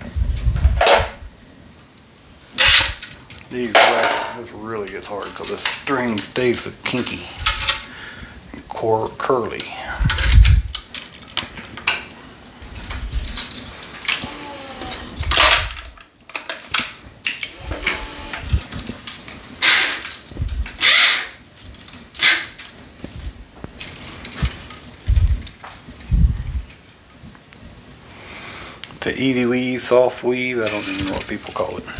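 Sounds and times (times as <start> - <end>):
clicks and knocks handling racket: 30.4 - 31.8.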